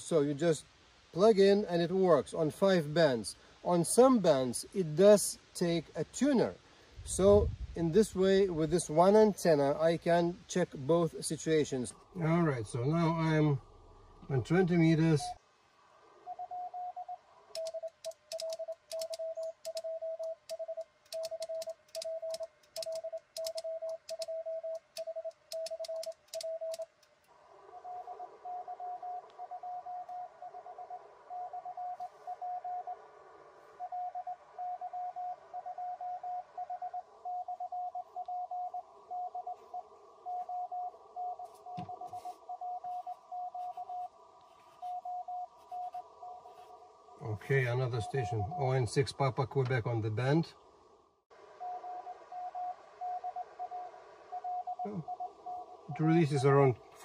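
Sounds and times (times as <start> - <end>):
higher-pitched morse signal: 11.4 - 15.4, 27.8 - 33.0, 33.6 - 50.3, 51.6 - 57.0
radio band hiss: 14.2 - 15.4, 41.4 - 50.6, 54.8 - 57.0
morse code sidetone beeps: 16.3 - 26.9, 33.8 - 46.6, 51.7 - 56.8.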